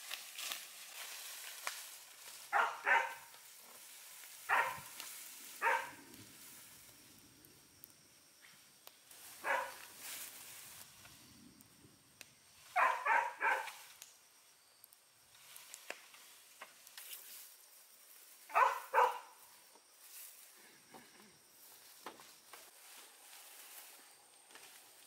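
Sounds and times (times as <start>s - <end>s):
dog barking: 2.5s - 3.3s, 4.5s - 4.9s, 5.6s - 6.0s, 9.4s - 9.8s, 12.8s - 13.8s, 18.5s - 19.4s
faint clicks: 13.7s - 14.2s.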